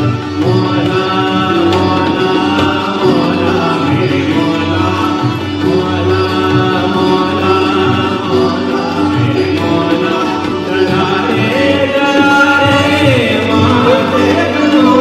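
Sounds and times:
man singing slow song: 0:00.0 - 0:15.0
tabla strokes: 0:00.0 - 0:15.0.

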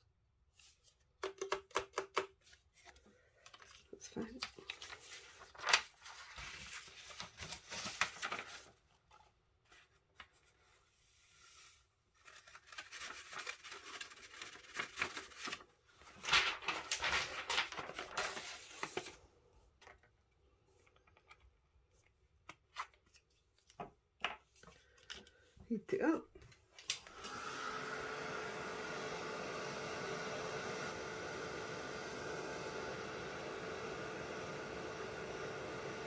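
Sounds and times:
paper rustling: 0:02.4 - 0:25.5.

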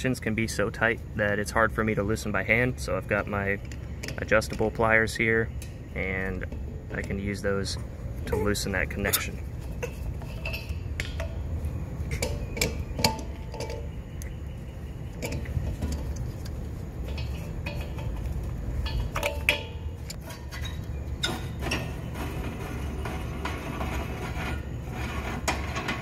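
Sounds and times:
low background rumble: 0:00.0 - 0:26.0.

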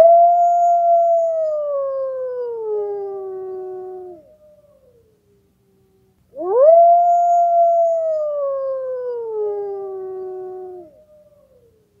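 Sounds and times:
wolf howling: 0:06.4 - 0:11.7.

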